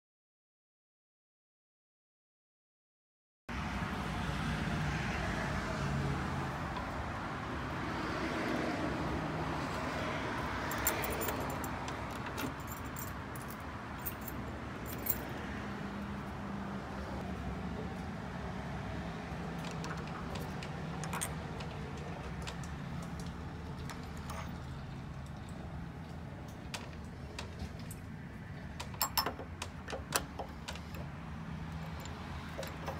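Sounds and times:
door handle and key clicking: 28.8 - 31.1.

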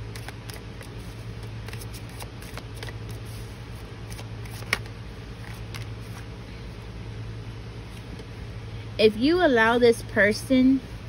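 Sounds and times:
cards being shuffled: 0.0 - 6.3
card snap: 4.1 - 4.9.

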